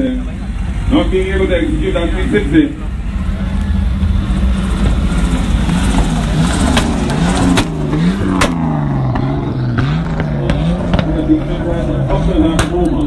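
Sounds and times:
car engine revving: 0:00.0 - 0:13.0
sharp cracks: 0:05.9 - 0:11.2.

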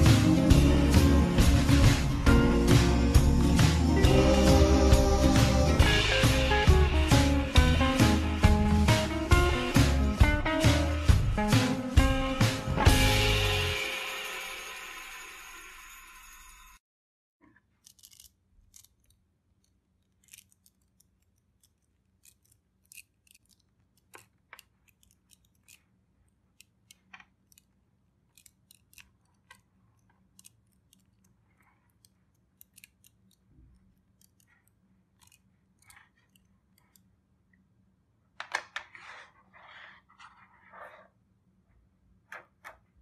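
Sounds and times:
rustling clicks: 0:17.4 - 0:37.1
small sharp clicks and snips: 0:17.4 - 0:37.1.

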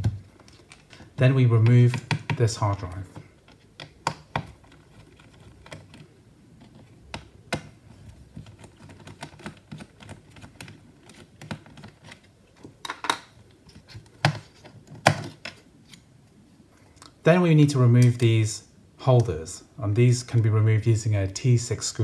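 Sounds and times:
soft handling rustle: 0:00.0 - 0:07.1, 0:07.7 - 0:17.2.

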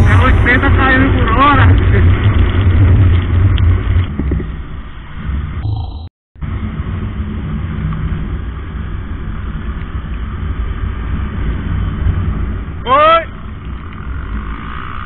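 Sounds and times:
rushing road noise: 0:00.0 - 0:05.7
motorcycle engine rumble: 0:00.0 - 0:15.0.

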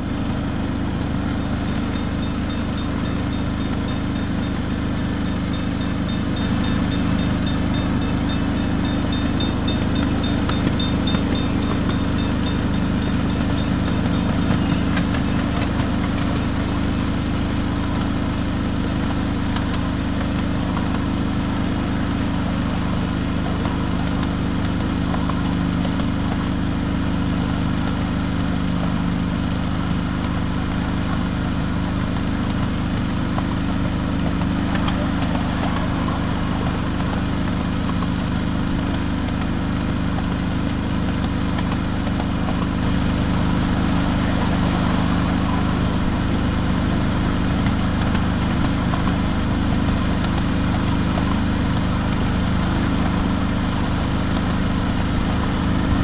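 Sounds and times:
miniature locomotive engine running: 0:00.0 - 0:56.0
repeating high ringing: 0:01.3 - 0:18.2.

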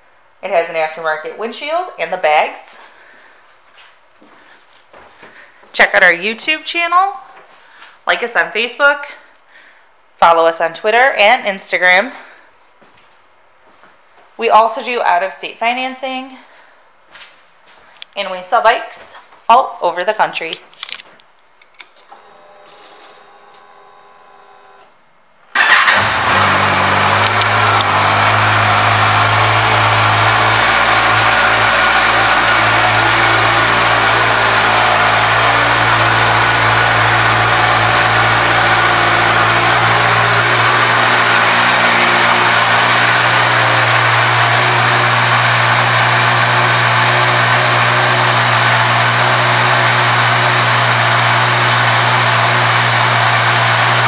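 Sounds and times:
motorcycle engine starting and idling: 0:25.5 - 0:54.0.

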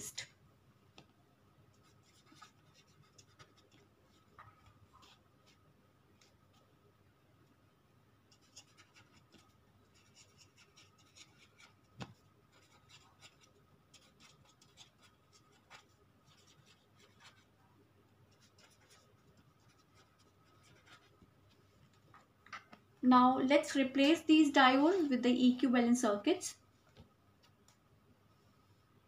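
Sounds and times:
pen scratching on paper: 0:01.7 - 0:05.6, 0:08.3 - 0:11.9, 0:12.5 - 0:17.5, 0:18.3 - 0:21.2.

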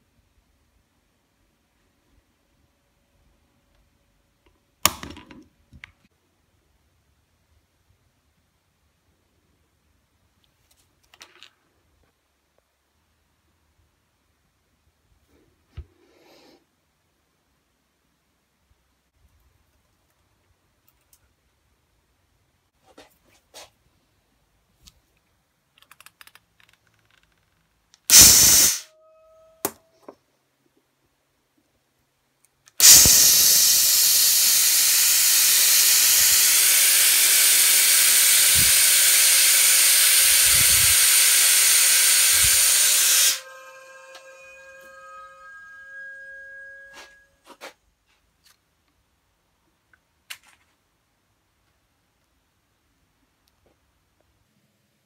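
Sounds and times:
loud hiss: 0:28.1 - 0:28.9, 0:32.8 - 0:45.1
faint steady tone: 0:28.2 - 0:32.2, 0:41.9 - 0:47.6
sharp click: 0:32.7 - 0:33.8.

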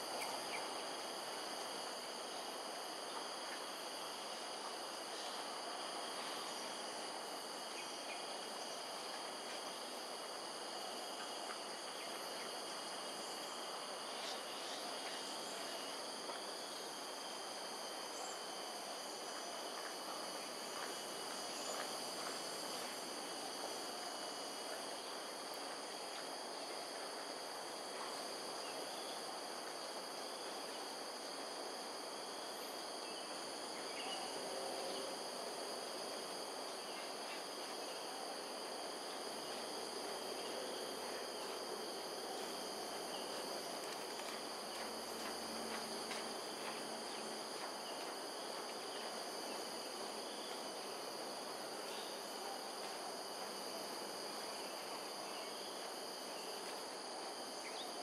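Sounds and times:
background hiss: 0:00.0 - 0:58.0
insects trilling: 0:00.0 - 0:58.0.

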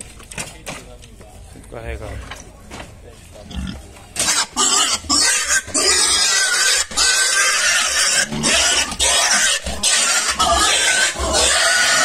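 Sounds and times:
pig squealing: 0:03.5 - 0:12.0.

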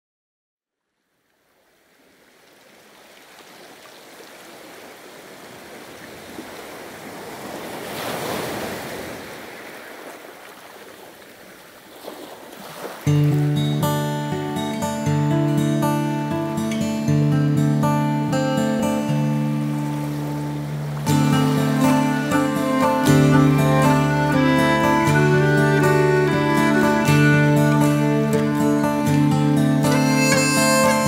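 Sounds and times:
waves breaking: 0:01.4 - 0:14.9, 0:18.2 - 0:31.0
acoustic guitar plucking: 0:13.0 - 0:31.0.

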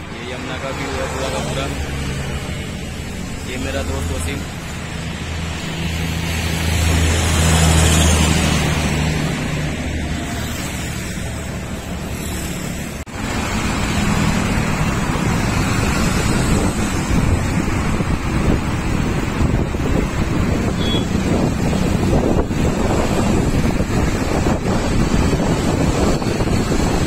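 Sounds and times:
road traffic noise: 0:00.0 - 0:27.0
wind buffeting microphone: 0:13.8 - 0:27.0.

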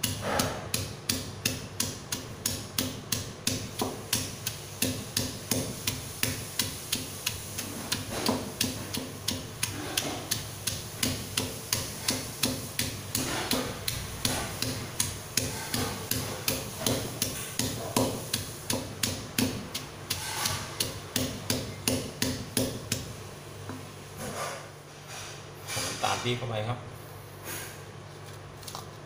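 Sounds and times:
stone pestle pounding in mortar: 0:00.0 - 0:23.2.

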